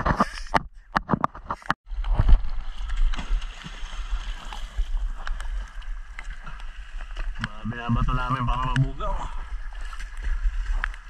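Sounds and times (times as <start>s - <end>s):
sharp splashes: 2.3s - 7.0s.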